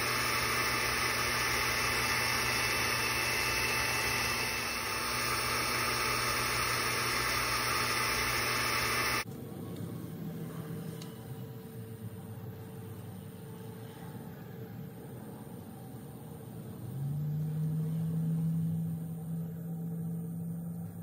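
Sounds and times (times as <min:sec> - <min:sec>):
laser engraver fans whirring: 0:00.0 - 0:09.3.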